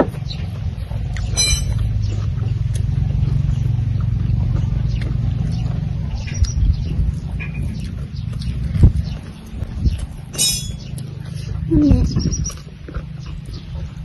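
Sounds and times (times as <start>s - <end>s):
clicks of eating by hand: 1.0s - 14.0s
wind buffeting microphone: 3.3s - 14.0s.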